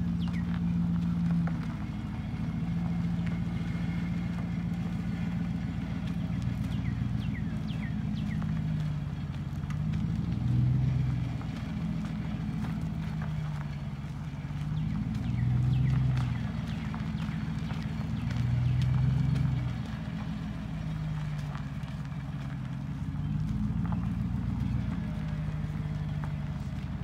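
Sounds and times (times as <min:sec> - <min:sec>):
truck engine running under load: 0:00.0 - 0:27.0.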